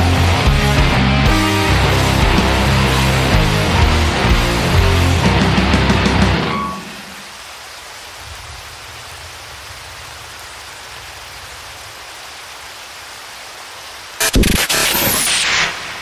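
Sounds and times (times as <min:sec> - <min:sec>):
rock music: 0:00.0 - 0:07.1.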